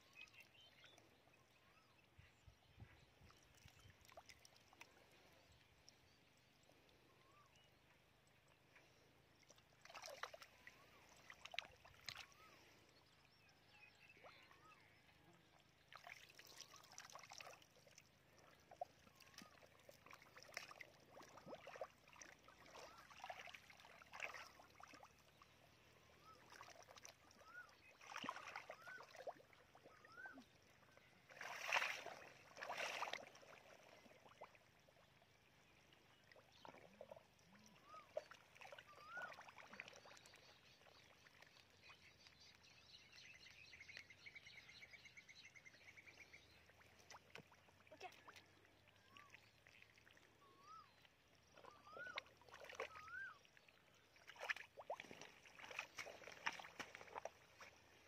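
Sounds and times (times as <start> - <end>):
muddy water sloshing and splashing: 3.2 - 5.8, 8.8 - 12.9, 15.6 - 42.6, 45.9 - 58.0.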